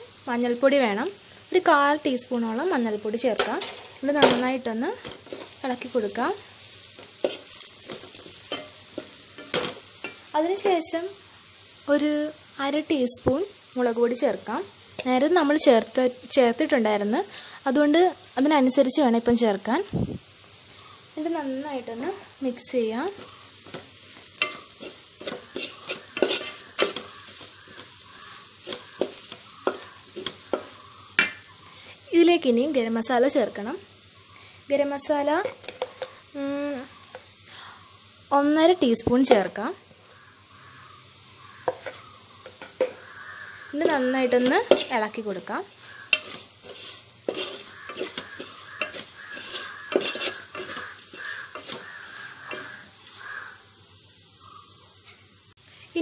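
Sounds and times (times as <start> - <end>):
oil sizzling: 0.0 - 56.0
wooden spatula scraping metal pan: 5.0 - 5.9, 7.0 - 10.3, 23.1 - 31.4, 41.6 - 53.3.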